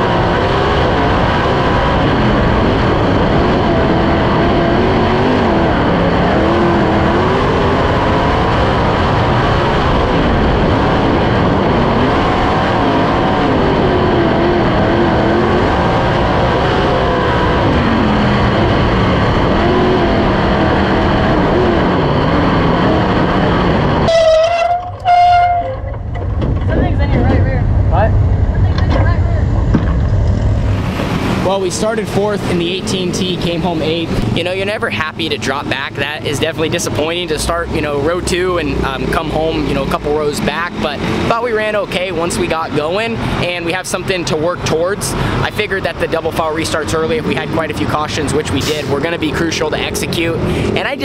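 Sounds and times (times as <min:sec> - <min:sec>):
race car engine at full speed: 0:00.0 - 0:51.0
steady horn-like tone: 0:24.0 - 0:26.0.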